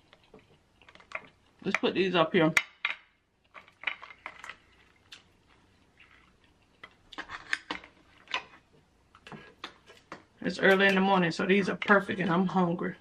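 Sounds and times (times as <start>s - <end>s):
crab shells clicking and crackling: 0.0s - 1.9s, 2.6s - 11.0s.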